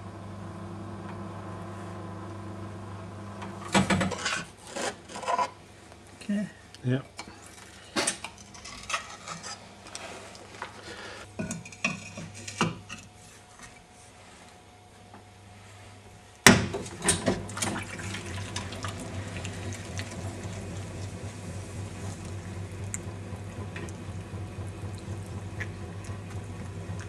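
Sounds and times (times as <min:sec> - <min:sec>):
potter's wheel humming: 0:00.0 - 0:03.8, 0:15.2 - 0:27.0.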